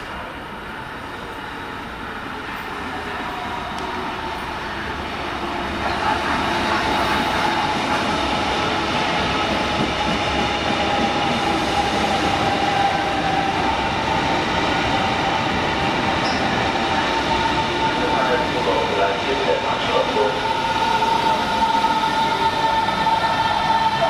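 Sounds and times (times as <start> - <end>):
electric train whining: 0.3 - 24.0.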